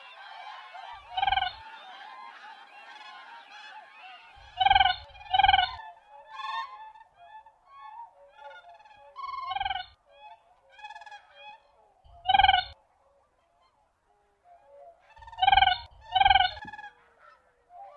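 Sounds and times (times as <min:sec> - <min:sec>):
crane honking calls: 0:00.0 - 0:03.4, 0:04.4 - 0:05.8, 0:09.3 - 0:09.9, 0:12.1 - 0:12.8, 0:15.2 - 0:16.8.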